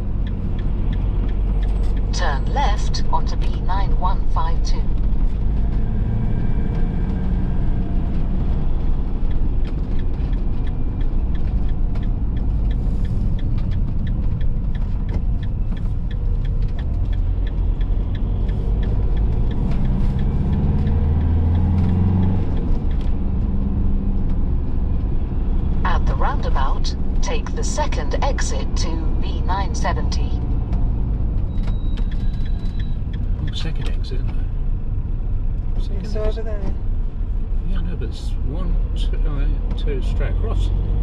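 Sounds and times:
engine and road rumble: 0:00.0 - 0:41.0.

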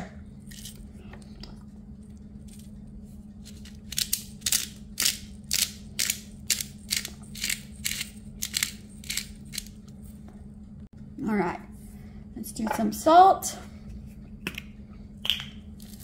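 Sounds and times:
pepper grinder grinding: 0:03.5 - 0:09.8.

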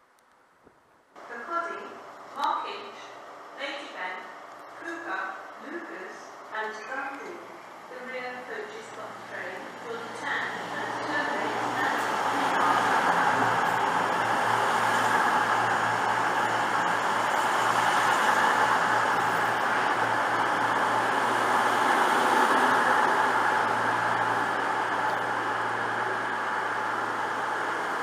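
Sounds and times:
diesel train engines droning: 0:02.6 - 0:28.0.

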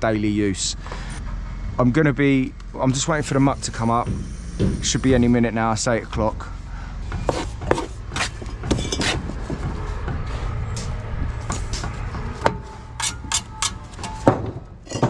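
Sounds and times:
steady low rumble: 0:00.0 - 0:14.9
trowel scraping mortar: 0:07.2 - 0:09.3.

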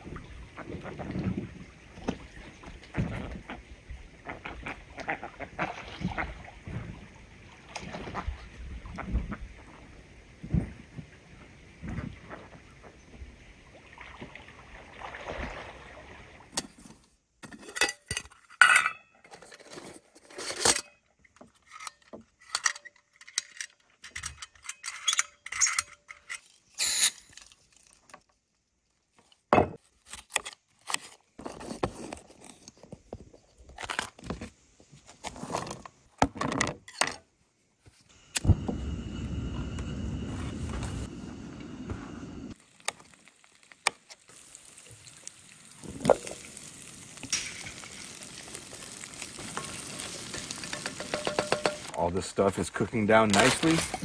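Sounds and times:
metal clatter of camp stove: 0:16.5 - 0:28.2, 0:36.4 - 0:37.3, 0:47.2 - 0:48.2, 0:48.8 - 0:52.0, 0:53.2 - 0:54.0
gas burner rushing: 0:38.2 - 0:42.6.

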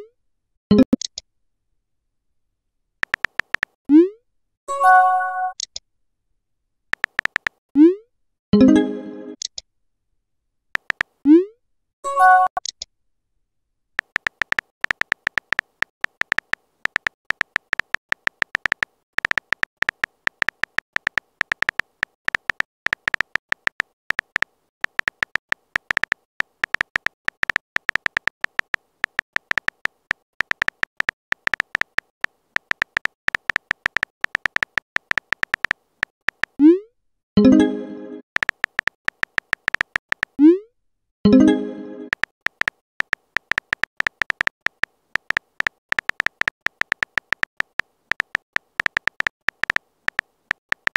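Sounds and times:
phone keyboard tap clicks: 0:03.0 - 0:03.8, 0:07.0 - 0:07.6, 0:10.8 - 0:11.1, 0:14.0 - 0:36.6, 0:38.4 - 0:40.4, 0:42.1 - 0:50.9
message notification tones: 0:08.6 - 0:09.4, 0:37.4 - 0:38.2, 0:41.3 - 0:42.2.

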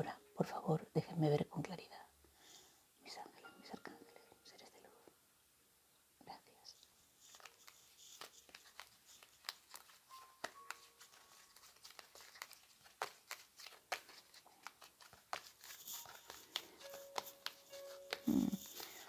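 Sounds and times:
cards being shuffled: 0:07.0 - 0:19.0.

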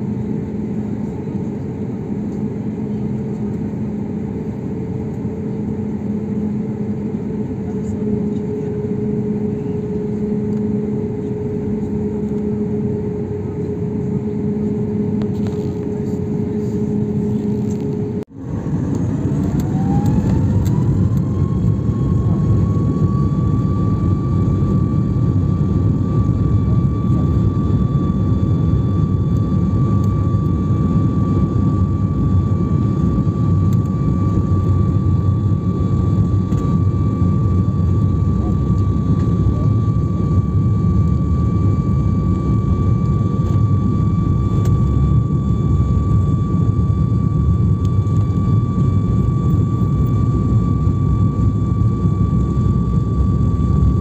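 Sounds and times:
aircraft cabin rumble: 0:00.0 - 0:54.0
jet engines spooling up: 0:14.3 - 0:54.0.

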